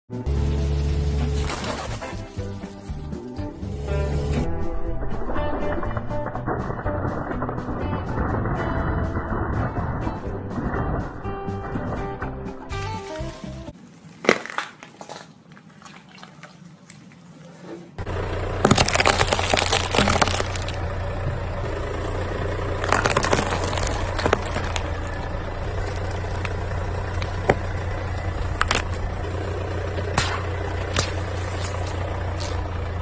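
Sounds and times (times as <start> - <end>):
leaf cracking under tyre: 1.2 - 3.1, 14.0 - 15.3, 18.0 - 33.0
cucumber crunching under tyre: 13.8 - 16.4, 18.4 - 21.0, 22.2 - 32.8
car engine idling: 18.0 - 33.0
sharp cracks: 18.5 - 21.0, 22.5 - 32.8.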